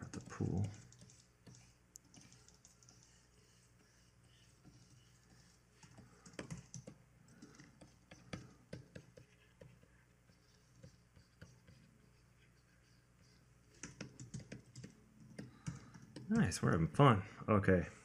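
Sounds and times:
computer keyboard keys clicking: 0.0s - 3.1s, 5.8s - 9.2s, 13.7s - 16.4s.

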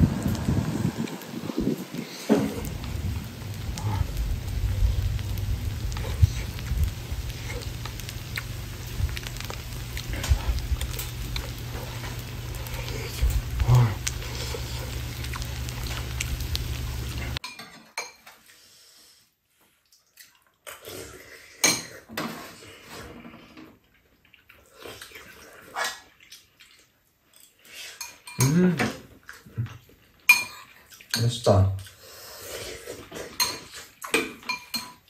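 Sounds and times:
low outdoor rumble: 0.0s - 17.4s
spoons clinking on bowls: 33.4s - 35.0s.

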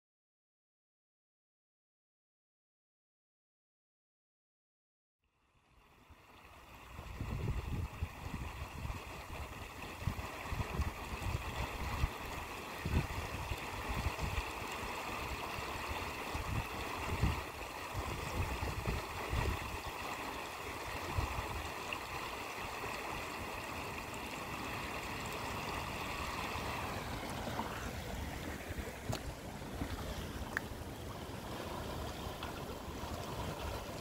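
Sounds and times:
water rushing over weir: 5.8s - 34.0s
wind buffeting microphone: 7.0s - 20.0s.

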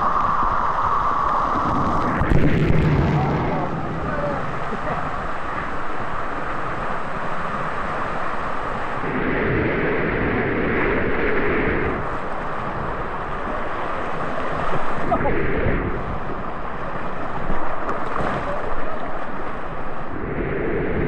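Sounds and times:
water rushing and splashing: 0.0s - 21.0s.

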